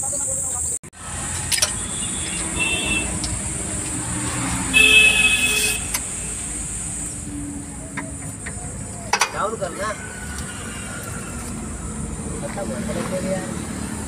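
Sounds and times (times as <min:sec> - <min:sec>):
road traffic noise: 0:00.0 - 0:14.0
vehicle horn honking: 0:01.7 - 0:03.2, 0:04.7 - 0:06.0.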